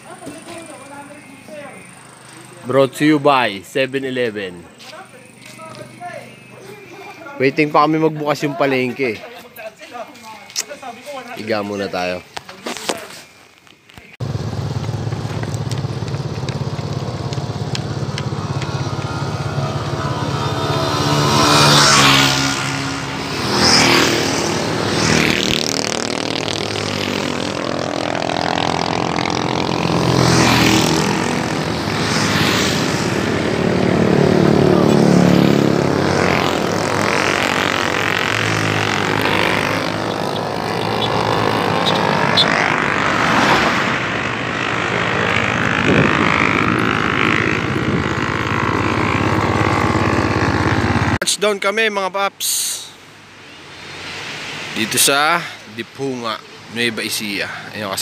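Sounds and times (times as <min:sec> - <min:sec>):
motorcycles passing by: 0:00.0 - 0:09.3, 0:14.2 - 0:58.0.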